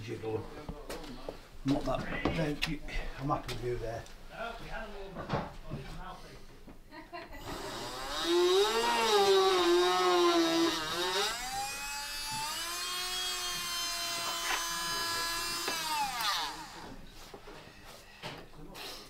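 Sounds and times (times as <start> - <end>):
mini drill whining: 7.4 - 17.0.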